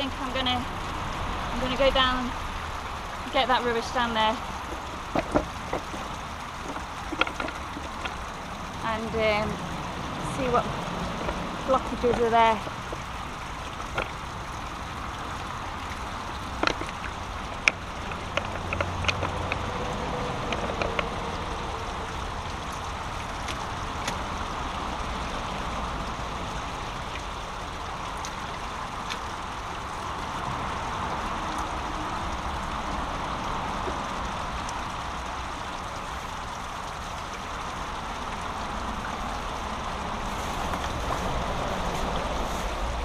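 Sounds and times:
brook water over small waterfall: 0:00.0 - 0:43.0
sharp clicks and knocks: 0:04.6 - 0:08.3, 0:13.8 - 0:14.2, 0:16.5 - 0:19.7, 0:20.4 - 0:21.1.

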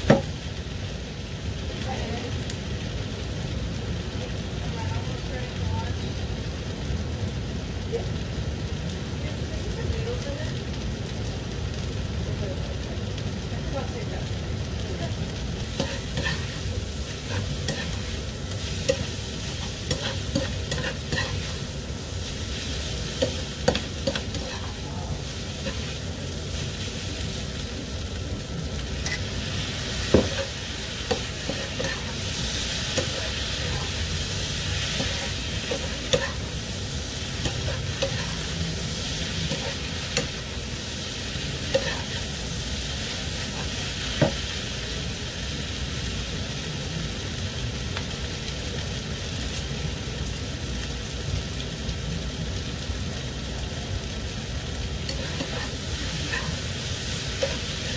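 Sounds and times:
noodles sizzling in a skillet: 0:00.0 - 0:57.9
tongs clicking and scraping pan: 0:15.7 - 0:21.6, 0:22.5 - 0:26.0, 0:29.0 - 0:29.3, 0:30.0 - 0:34.0, 0:34.8 - 0:36.5, 0:37.3 - 0:40.5, 0:41.6 - 0:42.3, 0:55.0 - 0:57.9.

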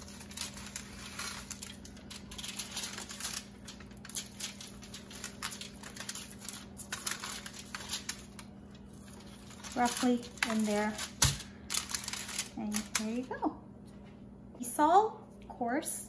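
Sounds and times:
leaves rustling: 0:00.0 - 0:08.4
aluminium foil crinkling: 0:00.0 - 0:13.4.

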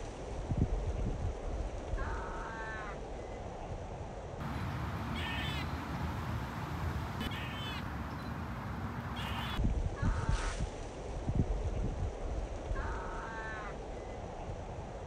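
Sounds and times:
steady low rumble: 0:03.0 - 0:10.2.

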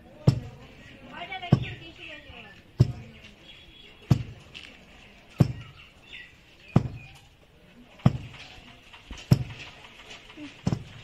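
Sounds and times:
faint birds chirping: 0:00.5 - 0:11.0
wooden pestle thudding in mortar: 0:04.1 - 0:04.4, 0:05.4 - 0:05.8, 0:06.7 - 0:07.2, 0:08.0 - 0:09.7, 0:10.6 - 0:11.0.

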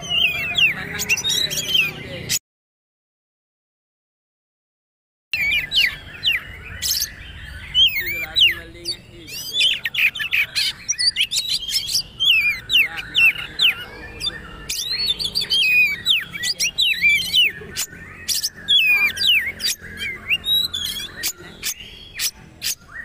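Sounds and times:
bird singing whistled notes: 0:05.4 - 0:23.0.

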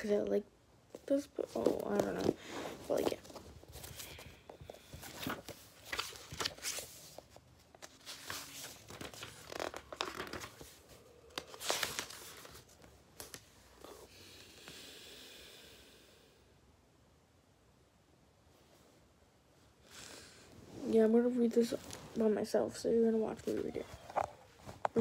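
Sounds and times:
book pages flipping: 0:01.0 - 0:13.7, 0:23.4 - 0:25.0.

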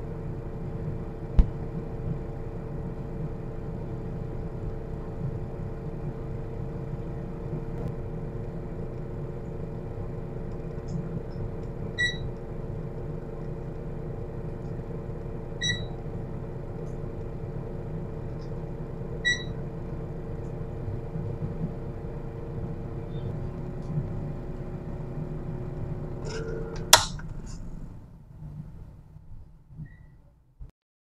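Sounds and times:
electric fan humming: 0:00.0 - 0:29.6
thermometer beeps: 0:12.0 - 0:12.3, 0:15.6 - 0:16.0, 0:19.2 - 0:19.6.

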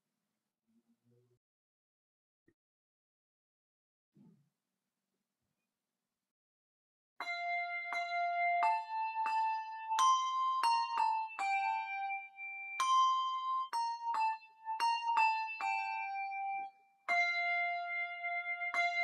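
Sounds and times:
handbells ringing a slow melody: 0:07.2 - 0:19.0.

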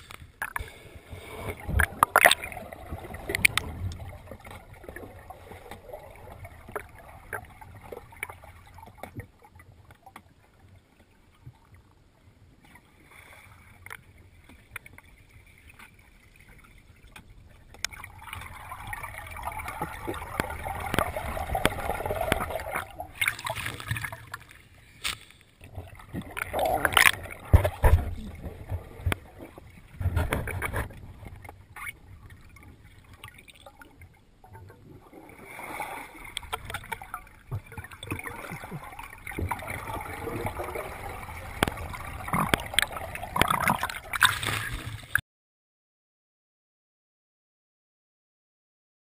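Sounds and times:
water sloshing and lapping: 0:00.0 - 0:45.2
sharp water splashes: 0:01.5 - 0:07.5, 0:17.9 - 0:29.5, 0:35.1 - 0:45.2.

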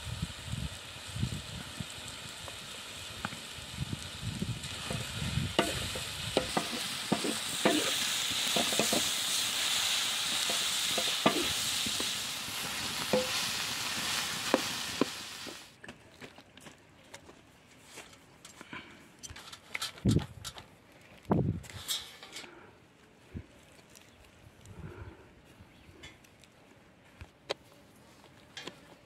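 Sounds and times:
meat sizzling in a pan: 0:00.0 - 0:15.7
utensil scraping a pan: 0:04.7 - 0:15.6.

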